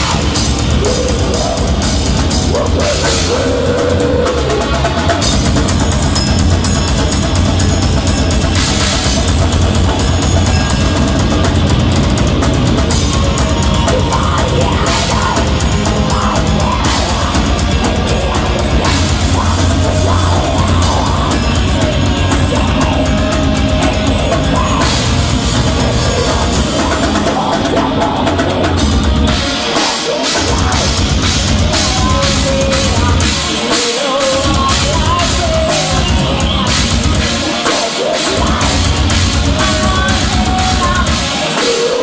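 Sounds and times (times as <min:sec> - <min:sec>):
distorted electric guitars: 0:00.0 - 0:42.0
drum kit: 0:00.0 - 0:42.0
woman singing: 0:13.1 - 0:25.2, 0:29.4 - 0:42.0.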